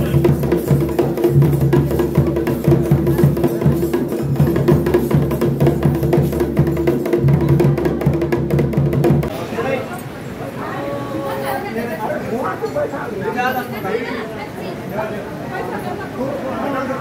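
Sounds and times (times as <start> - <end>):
rapid drumming: 0.0 - 9.4.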